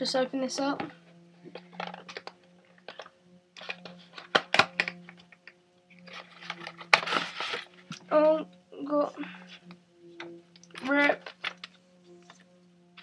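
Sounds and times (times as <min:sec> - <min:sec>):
steady low hum: 0:00.0 - 0:13.0
packaging crinkling and clicking: 0:01.5 - 0:08.1, 0:10.2 - 0:12.4.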